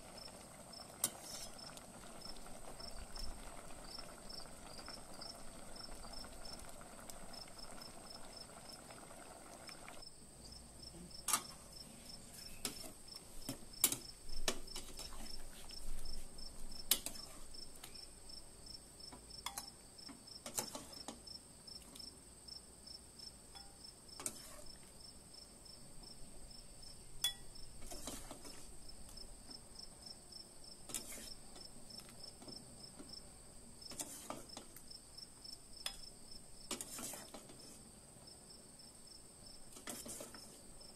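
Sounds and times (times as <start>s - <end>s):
pot simmering hiss: 0.0s - 40.9s
insect chirring: 0.1s - 10.6s
metal ladle clinking on pot and bowl: 27.2s - 27.5s.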